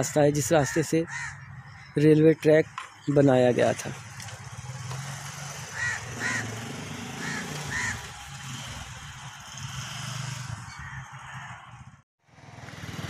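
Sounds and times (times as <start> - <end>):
crow cawing: 0.6 - 1.9, 5.7 - 8.1, 10.7 - 11.6.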